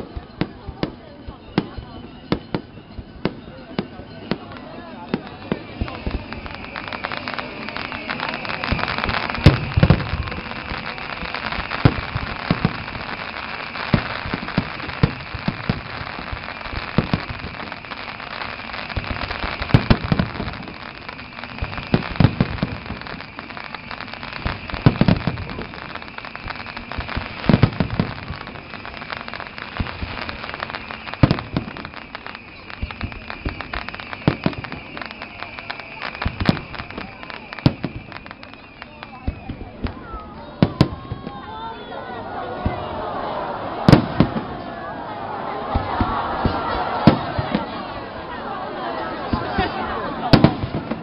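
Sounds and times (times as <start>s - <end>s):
dense firework crackling: 0.0s - 51.0s
firework shells bursting: 2.4s - 41.3s, 43.8s - 44.8s.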